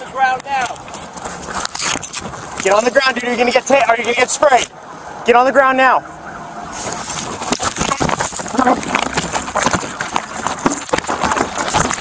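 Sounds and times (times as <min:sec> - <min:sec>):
scrambling footsteps: 0:00.0 - 0:04.7, 0:06.8 - 0:12.0
camera rubbing against clothing: 0:00.7 - 0:04.7, 0:06.7 - 0:12.0
camera knocks and thuds: 0:07.2 - 0:12.0.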